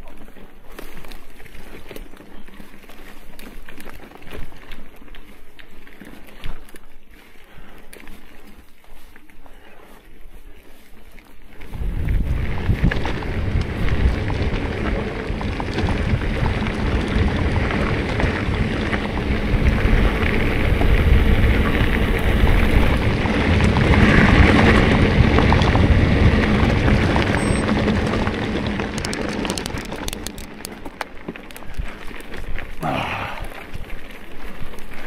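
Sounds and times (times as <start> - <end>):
bike tyres crunching on gravel: 0.0 - 35.0
wind buffeting microphone: 11.6 - 30.8
sharp ticks and rattles: 11.7 - 32.8.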